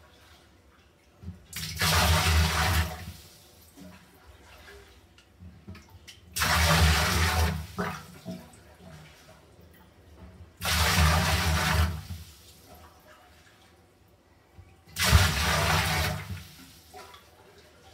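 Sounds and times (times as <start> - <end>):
quiet water sounds: 0.0 - 17.9
loud water splashing: 6.4 - 8.0, 10.6 - 12.4, 15.0 - 17.1.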